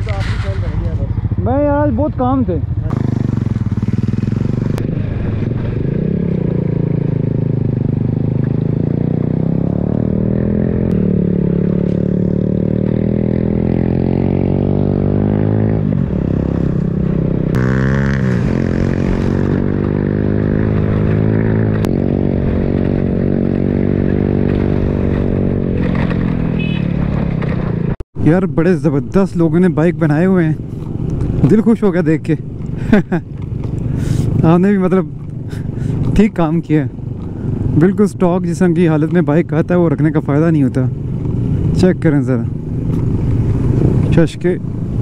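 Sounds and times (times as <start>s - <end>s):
motorcycle engine running: 0.0s - 28.0s, 28.8s - 45.0s
wind rumble on microphone: 3.0s - 8.8s, 42.6s - 45.0s.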